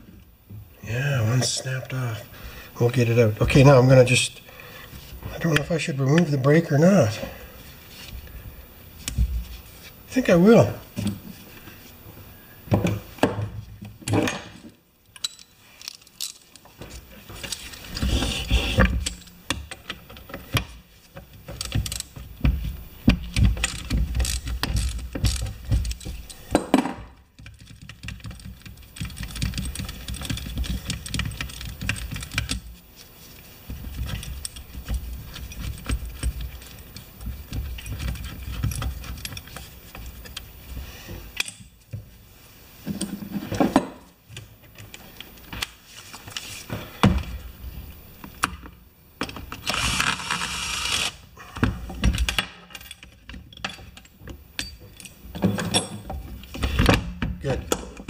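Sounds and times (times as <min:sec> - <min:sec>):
metal parts clinking: 0:15.1 - 0:16.6.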